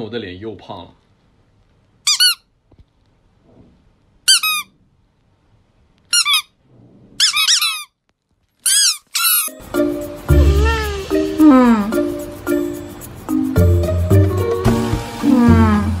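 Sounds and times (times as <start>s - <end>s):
squeaky toy squeaking: 2.0s - 2.5s, 4.3s - 4.7s, 6.1s - 6.6s, 7.2s - 8.0s, 8.6s - 9.6s, 10.3s - 11.1s.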